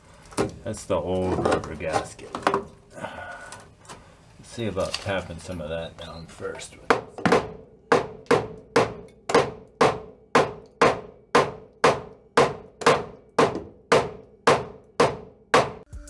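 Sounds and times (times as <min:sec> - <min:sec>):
hammer striking sheet metal: 0:06.9 - 0:15.9.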